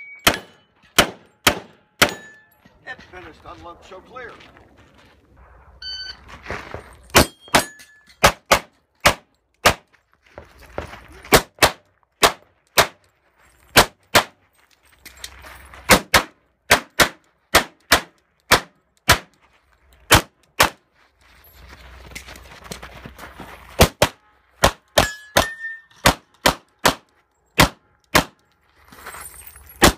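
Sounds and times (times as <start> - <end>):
pistol shots: 0.2 - 2.3, 7.2 - 9.8, 11.3 - 13.0, 15.9 - 19.3, 20.1 - 20.8, 23.8 - 28.4
shot timer beep: 5.8 - 6.2.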